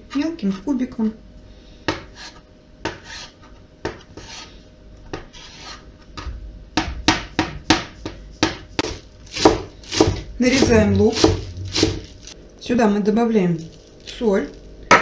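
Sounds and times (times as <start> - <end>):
knife chopping on cutting board: 1.9 - 4.4, 6.8 - 12.1.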